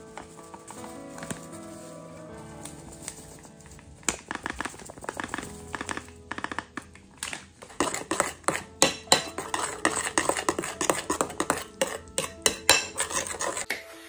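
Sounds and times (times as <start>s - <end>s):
metal spoon stirring in glass bowl: 7.6s - 13.7s.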